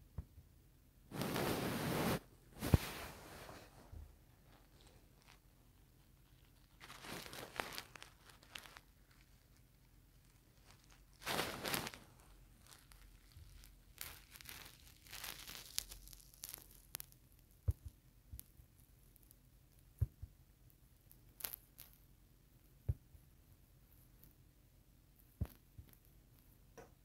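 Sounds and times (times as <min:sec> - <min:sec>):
rustling and crinkling: 0:01.1 - 0:24.5, 0:25.1 - 0:27.0
scattered crackles: 0:01.1 - 0:24.5, 0:25.2 - 0:26.7.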